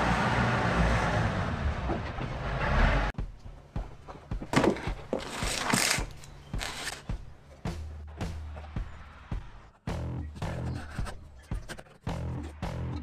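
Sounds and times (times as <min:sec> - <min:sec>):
scraping and rustling: 0:04.1 - 0:07.0.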